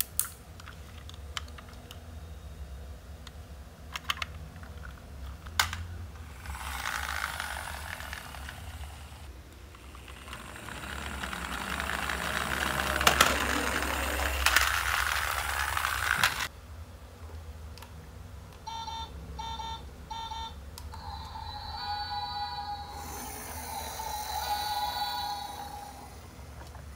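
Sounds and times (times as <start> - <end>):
toy wheels rolling on wooden ramp: 6.3 - 16.5
held electronic tone: 18.7 - 26.4.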